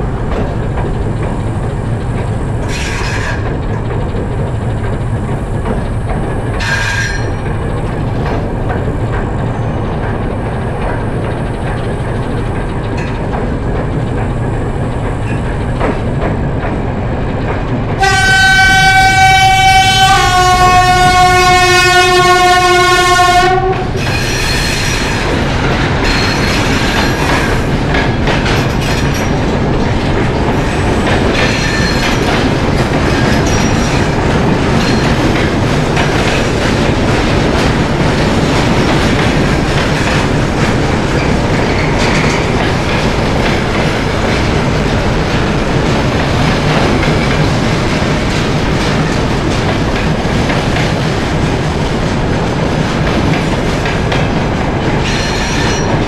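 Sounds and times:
locomotive engine and wheels rumbling: 0:00.0 - 0:56.0
wheels clickety-clack: 0:00.0 - 0:56.0
wheel squeal: 0:06.6 - 0:07.5, 0:26.0 - 0:27.6
locomotive horn: 0:18.0 - 0:24.0.

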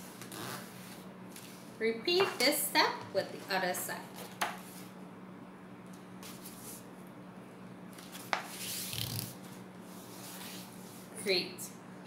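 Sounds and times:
steady low hum: 0:00.0 - 0:12.0
paper board rustling: 0:08.0 - 0:11.2.

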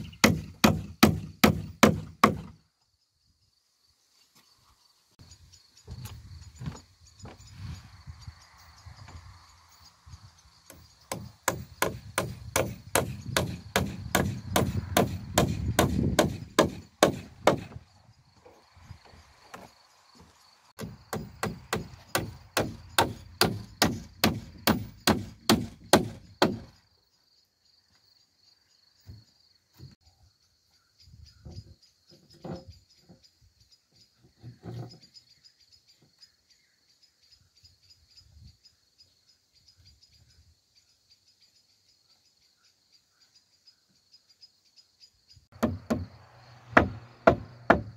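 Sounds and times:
hammer driving nails: 0:00.0 - 0:02.6, 0:11.1 - 0:17.8, 0:20.8 - 0:26.7, 0:45.6 - 0:46.1, 0:46.7 - 0:47.9
crickets chirping: 0:00.0 - 0:47.9.

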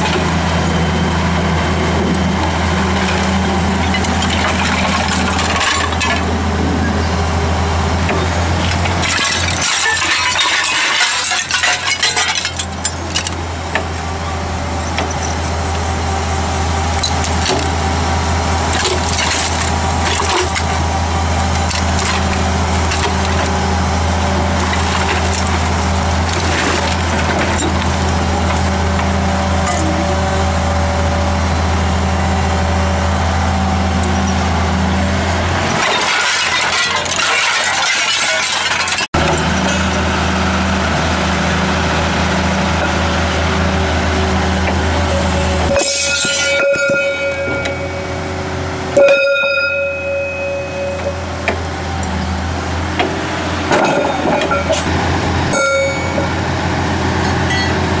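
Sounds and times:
excavator diesel engine running: 0:00.0 - 0:58.0
scrap iron clattering: 0:03.0 - 0:06.4, 0:08.0 - 0:13.9, 0:18.6 - 0:20.9, 0:21.5 - 0:23.6, 0:35.7 - 0:40.0, 0:44.6 - 0:51.6, 0:53.0 - 0:54.9, 0:55.5 - 0:56.4.

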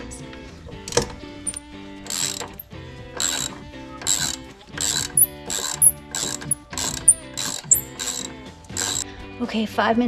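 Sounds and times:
ratchet wrench clicking: 0:01.5 - 0:09.0.

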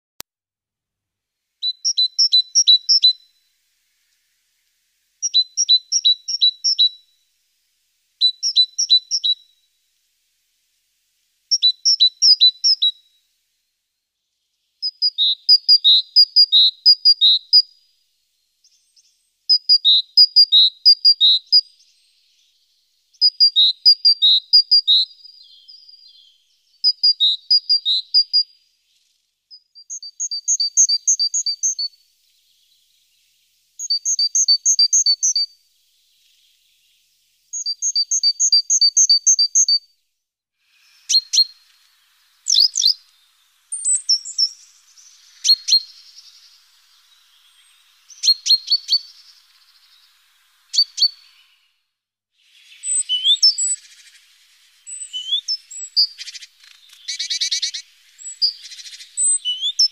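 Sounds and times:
great tit singing: 0:01.6 - 0:03.2, 0:05.2 - 0:07.0, 0:08.2 - 0:09.4, 0:11.5 - 0:12.9, 0:18.6 - 0:39.8, 0:40.7 - 0:51.7, 0:52.5 - 0:59.9.

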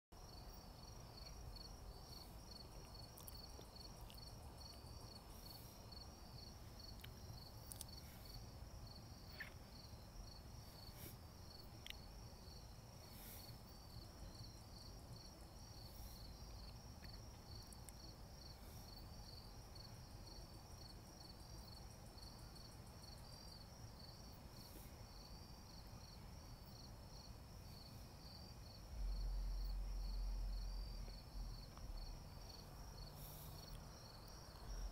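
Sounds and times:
crickets chirping: 0:00.2 - 0:34.9.

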